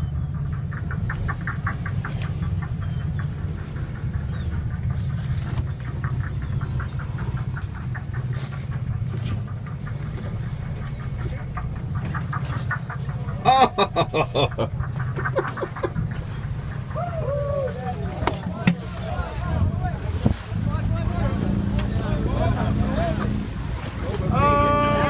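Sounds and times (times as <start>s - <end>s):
boat engine rumbling: 0.0s - 25.0s.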